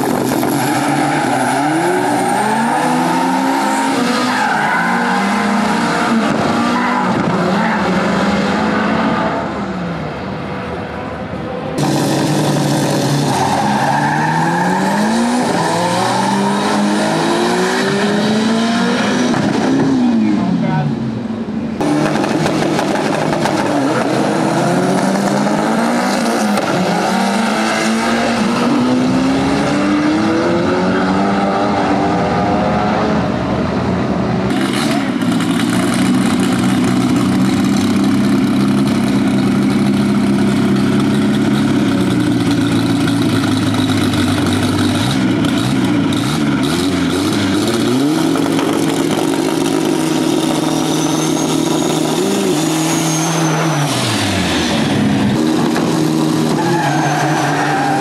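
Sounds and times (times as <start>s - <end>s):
engine revving: 11.8s - 20.8s, 21.8s - 33.5s, 34.5s - 58.0s.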